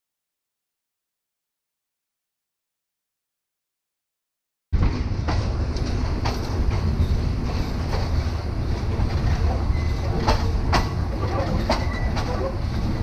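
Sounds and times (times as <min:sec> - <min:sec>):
train carriage rumbling on track: 0:04.8 - 0:13.0
wheels clacking over rail joints: 0:04.8 - 0:13.0.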